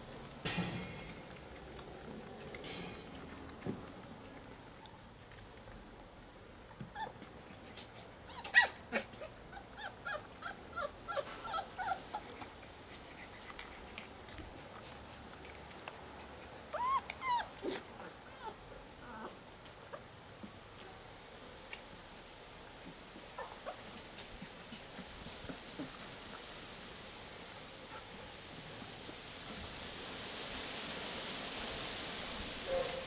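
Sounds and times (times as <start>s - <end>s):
puppy whines: 6.8s - 7.3s, 8.3s - 12.5s, 16.7s - 20.0s, 23.4s - 23.9s
puppies squeaking and whimpering: 8.2s - 12.5s, 16.7s - 19.3s.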